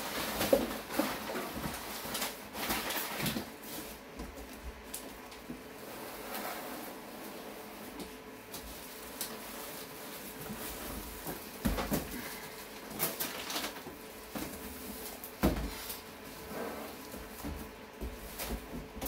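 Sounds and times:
plastic wrapping crinkling: 0.0 - 5.5, 8.4 - 17.4.

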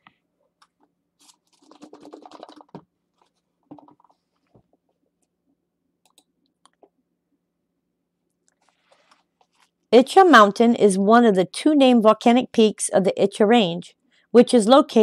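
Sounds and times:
soft rapid clicks and scratching: 0.6 - 5.4.

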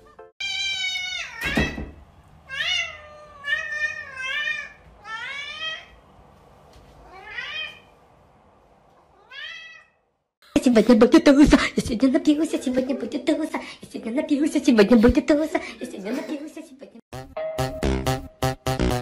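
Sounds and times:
cat meowing: 0.4 - 1.8, 2.5 - 6.0, 7.0 - 7.9, 9.1 - 10.0.

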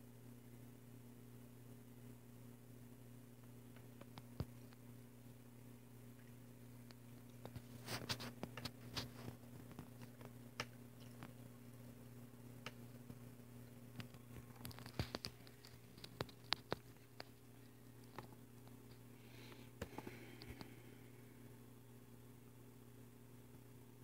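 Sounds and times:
steady low hum: 0.0 - 24.0
small clicks and taps: 6.2 - 11.4, 13.9 - 20.7.

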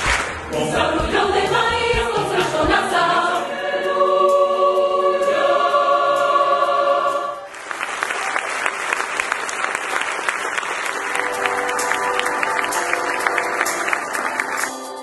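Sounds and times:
choir singing a chord: 0.5 - 7.5
audience applause: 7.5 - 15.0.

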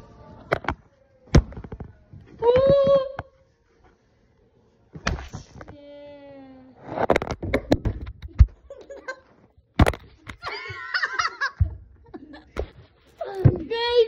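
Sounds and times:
child laughing: 8.7 - 9.3.

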